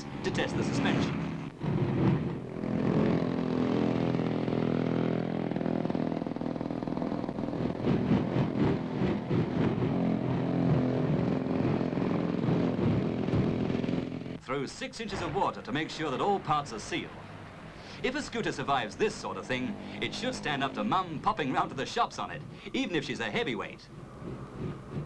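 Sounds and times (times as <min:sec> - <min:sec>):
motor scooter engine under load: 0:00.0 - 0:14.4.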